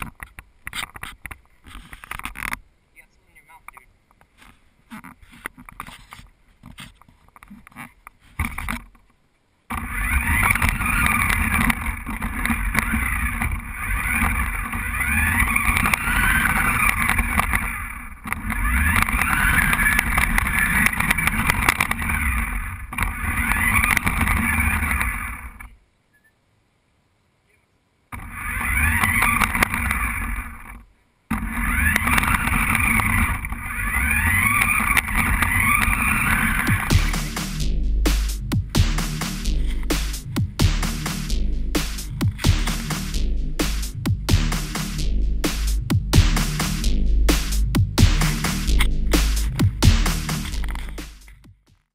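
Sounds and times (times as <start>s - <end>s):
rumbling wheel noise: 9.7s - 25.8s, 28.1s - 51.7s
toy car motor whining: 9.7s - 25.8s, 28.2s - 37.2s.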